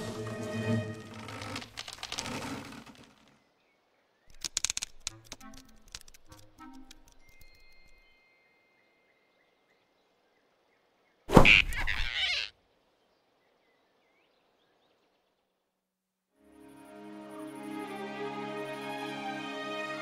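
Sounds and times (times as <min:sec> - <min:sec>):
faint forest ambience: 0:00.0 - 0:20.0
loud cartoon sound effect: 0:11.3 - 0:12.5.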